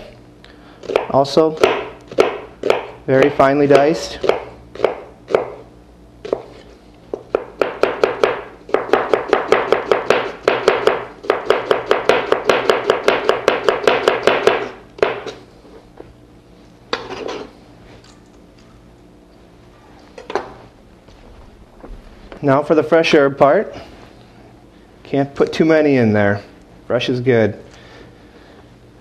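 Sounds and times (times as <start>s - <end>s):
knife chopping onion on board: 0.8s - 5.6s, 6.2s - 15.4s.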